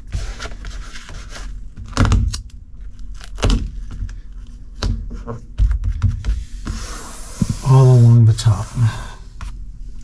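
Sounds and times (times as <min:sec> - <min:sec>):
tape scraping and rustling: 0:00.0 - 0:03.5
hands smoothing vinyl: 0:06.3 - 0:09.6.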